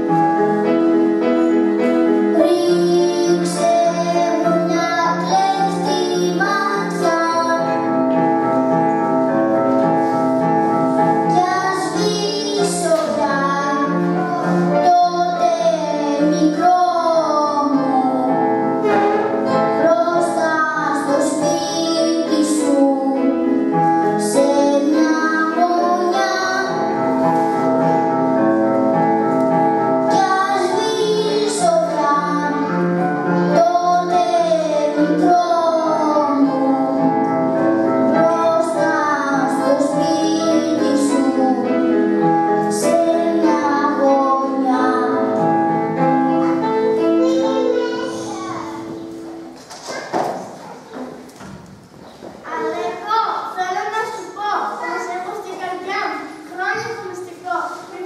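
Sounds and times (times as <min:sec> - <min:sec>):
instrumental accompaniment: 0:00.0 - 0:58.0
children singing: 0:02.2 - 0:09.1, 0:10.4 - 0:27.2, 0:29.9 - 0:51.2.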